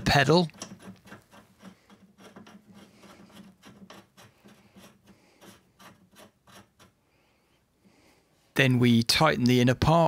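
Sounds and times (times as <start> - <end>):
metal scraping on metal: 0.0 - 7.0.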